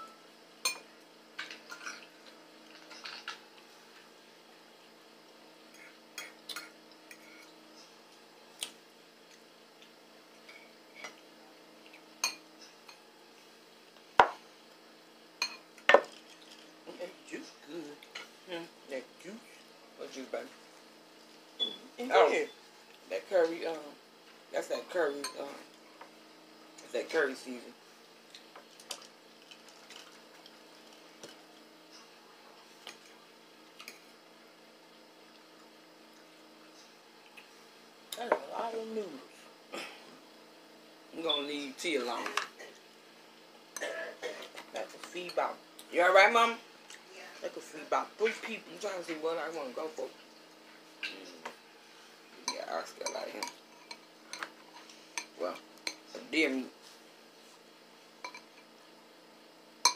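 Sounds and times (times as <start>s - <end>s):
low steady hum: 0.0s - 59.9s
forks clinking against dishes: 11.9s - 13.0s, 52.4s - 54.5s, 58.2s - 58.6s.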